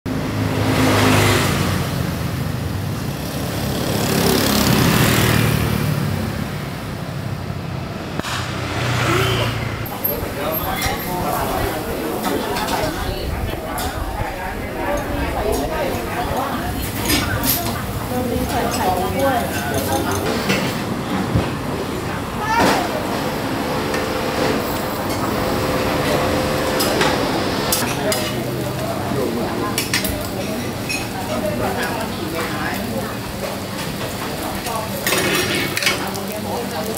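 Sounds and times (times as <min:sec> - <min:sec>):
vehicles passing: 0:00.1 - 0:35.7
hum of voices: 0:08.9 - 0:35.1
dishes and cutlery clinking: 0:16.4 - 0:20.9.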